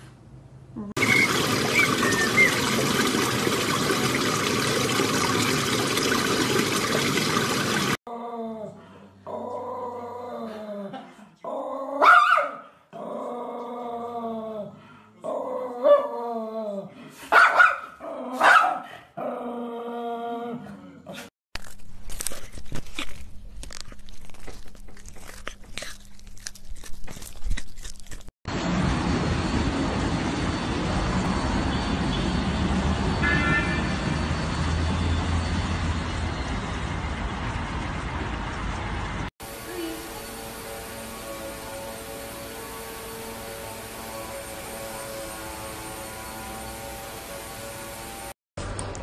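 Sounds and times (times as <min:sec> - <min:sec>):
puppy howling: 0:01.0 - 0:02.9
car wash brushes and water spray: 0:01.0 - 0:08.0
cat chewing food: 0:21.6 - 0:28.3.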